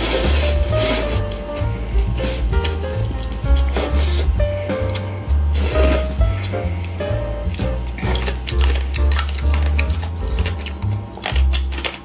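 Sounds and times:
music with heavy bass beat: 0.0 - 8.4.

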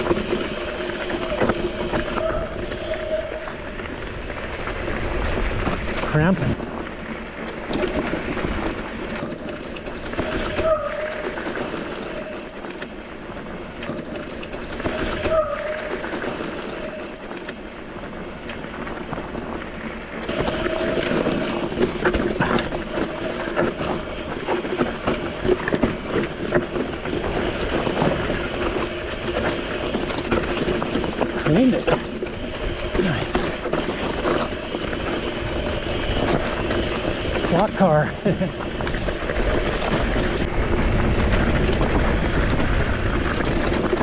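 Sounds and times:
bike rattling: 0.0 - 44.0
tyres crunching on gravel: 0.0 - 44.0
wind on microphone: 38.4 - 44.0.

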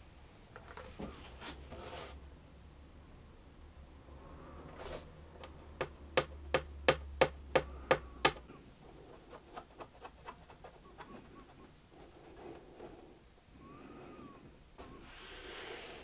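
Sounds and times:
fingers tapping on wood: 5.8 - 8.4.

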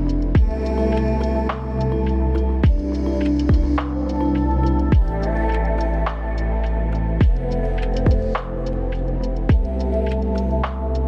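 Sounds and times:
sustained synth chords: 0.0 - 11.0
deep pitch-dropping kick drum: 0.4 - 0.7, 2.6 - 3.9, 4.9 - 5.2, 7.2 - 8.5, 9.5 - 9.8.

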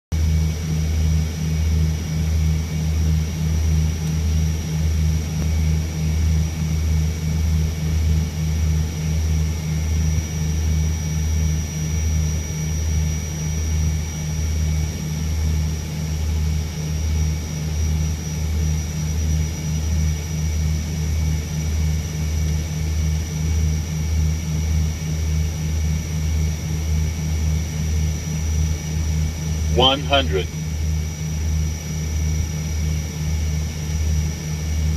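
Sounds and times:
turboprop engines droning: 29.4 - 30.6
faint high whine: 29.7 - 30.6.

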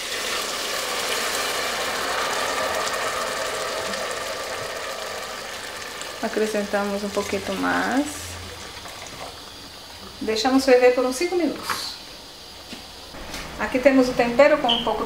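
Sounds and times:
broth pouring into pan: 0.0 - 10.3
vegetables sizzling and bubbling: 0.0 - 15.0.

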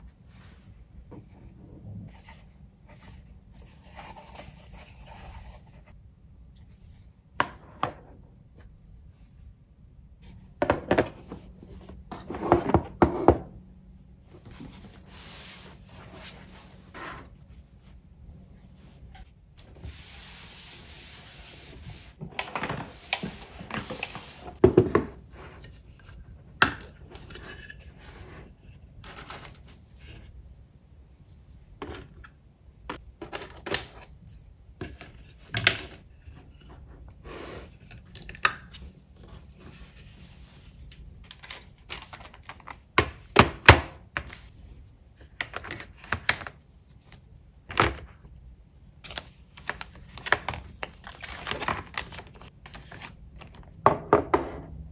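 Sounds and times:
cloth wiping a desktop: 19.7 - 22.2.

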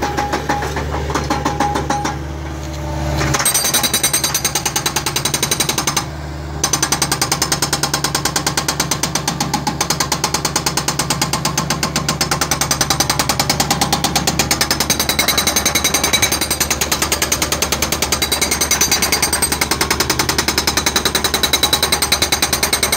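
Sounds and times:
hydraulic breaker hammering concrete: 0.0 - 2.6, 3.2 - 22.9
loader engine running: 0.0 - 22.9.

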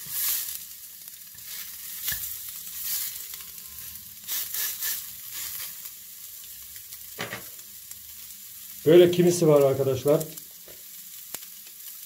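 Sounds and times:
fish sizzling in a frying pan: 0.0 - 12.0.

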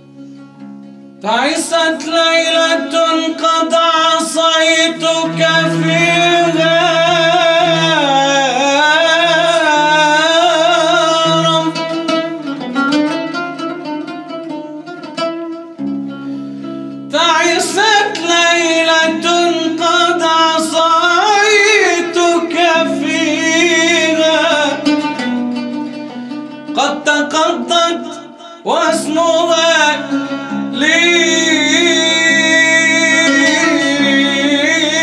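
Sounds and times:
man singing melismatic line: 1.2 - 12.5, 17.1 - 25.0, 26.7 - 35.0.

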